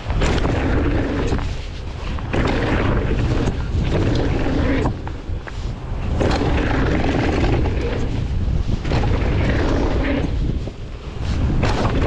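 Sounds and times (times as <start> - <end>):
bike clattering over rough ground: 0.0 - 5.2, 11.5 - 12.0
bike tyre noise: 0.0 - 12.0
wind buffeting microphone: 0.0 - 12.0.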